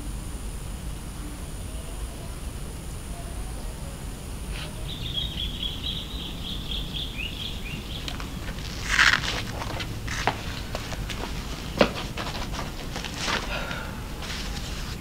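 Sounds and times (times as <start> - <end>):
low background noise: 0.0 - 15.0
bird twittering: 4.4 - 9.4
short scuffing noise: 8.0 - 15.0.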